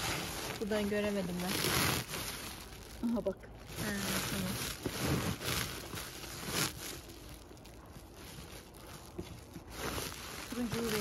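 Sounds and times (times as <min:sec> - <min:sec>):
plastic sack rustling and crinkling: 0:00.0 - 0:11.0.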